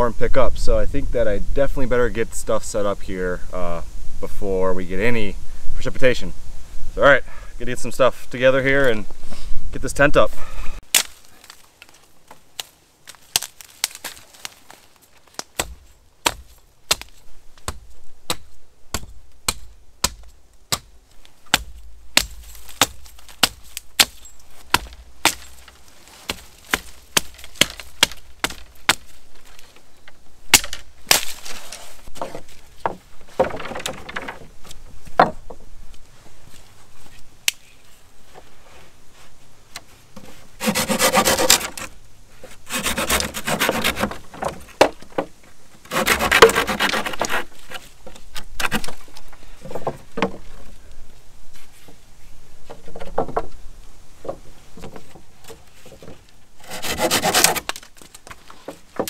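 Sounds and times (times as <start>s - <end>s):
axe chopping wood: 10.8s - 11.6s, 13.3s - 14.2s, 15.4s - 25.6s, 26.2s - 29.1s, 30.5s - 31.5s, 45.9s - 47.4s.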